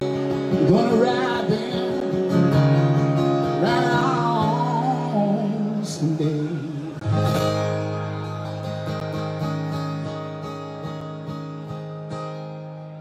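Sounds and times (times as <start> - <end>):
strummed acoustic guitar: 0.0 - 13.0
man singing: 0.4 - 7.2.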